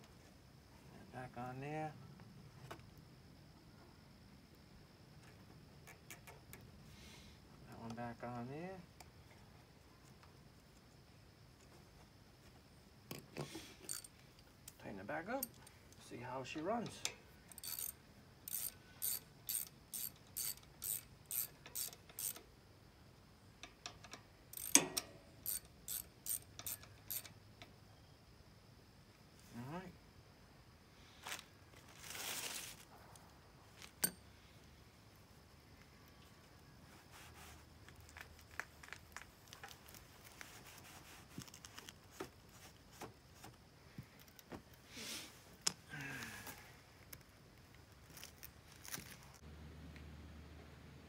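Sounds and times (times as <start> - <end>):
ratchet wrench clicking: 13.8 - 14.1, 17.0 - 22.5, 23.6 - 27.4.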